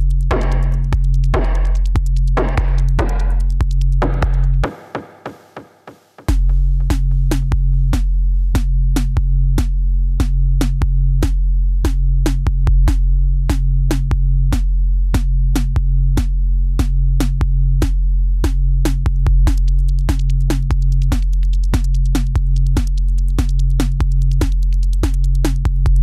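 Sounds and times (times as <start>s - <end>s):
electronic music with drum-machine beat: 0.0s - 14.6s, 15.2s - 26.0s.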